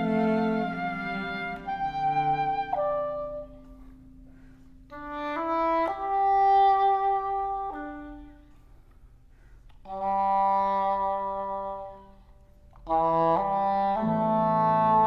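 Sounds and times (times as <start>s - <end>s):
cello: 0.0s - 8.6s
oboe: 0.0s - 8.9s, 9.8s - 15.0s.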